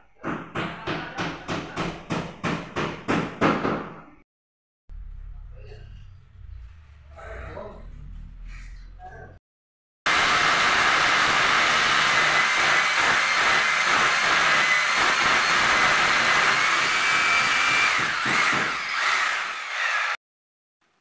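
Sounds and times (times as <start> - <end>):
cordless drill whining: 10.1 - 20.2.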